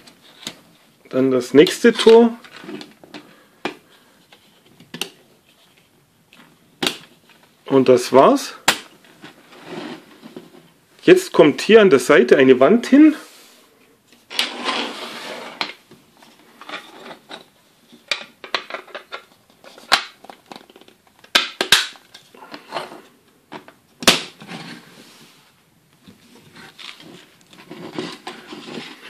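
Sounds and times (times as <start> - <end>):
plastic parts scraping and rustling: 0.0 - 0.9, 1.6 - 7.5, 14.1 - 21.4, 26.0 - 29.0.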